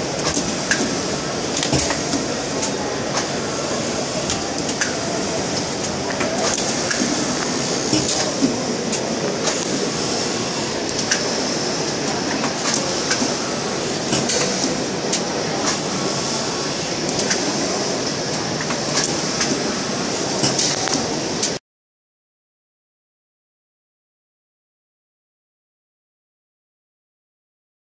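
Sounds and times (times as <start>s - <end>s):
printing machine hissing: 0.0s - 21.6s
machine clicks and knocks: 0.2s - 3.4s, 4.2s - 9.7s, 14.0s - 16.0s, 20.4s - 21.6s.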